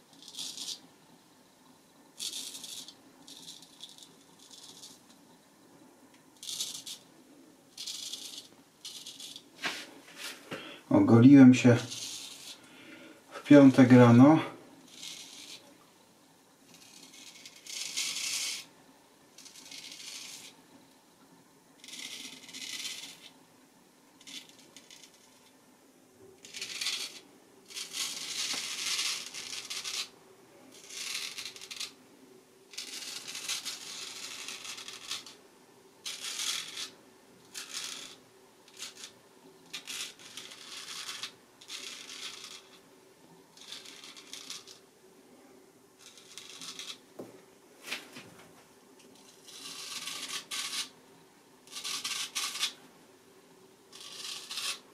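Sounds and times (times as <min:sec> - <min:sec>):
razor scraping stubble: 0:11.8 - 0:12.6.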